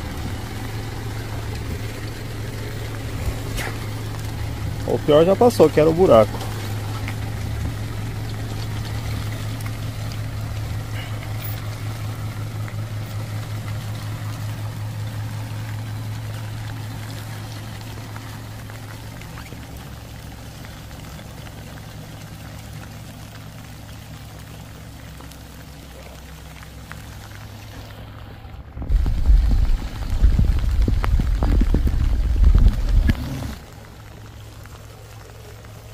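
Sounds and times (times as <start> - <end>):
engine running at low revs: 0.0 - 35.9
sudden loud low rumble: 27.5 - 35.9.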